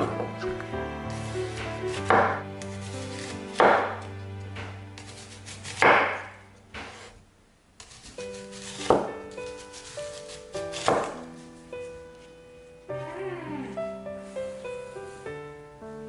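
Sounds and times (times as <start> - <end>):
soft background music: 0.0 - 7.1, 7.9 - 16.0
cleaver chopping onion on board: 5.7 - 7.0, 10.7 - 11.2.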